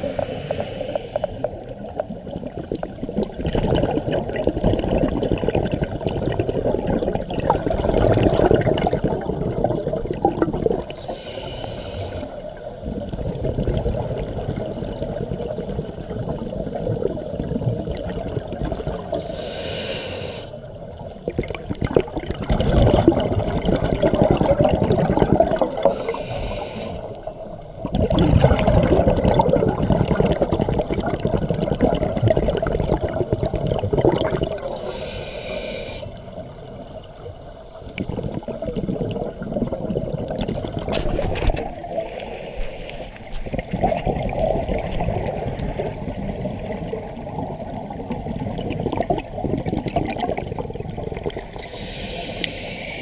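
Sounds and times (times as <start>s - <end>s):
regulator hiss on inhale: 0.0s - 1.6s, 10.9s - 12.5s, 19.1s - 20.7s, 25.7s - 27.4s, 34.6s - 36.3s, 37.5s - 38.4s, 41.8s - 43.5s, 51.5s - 53.0s
rumbling exhaled bubbles: 1.4s - 11.0s, 12.5s - 19.2s, 20.8s - 26.2s, 27.2s - 34.8s, 36.2s - 42.1s, 43.2s - 51.9s.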